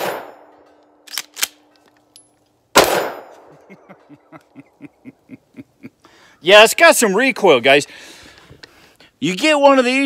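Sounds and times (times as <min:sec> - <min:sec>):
shotgun shot: 0:00.0 - 0:00.4, 0:02.7 - 0:03.4.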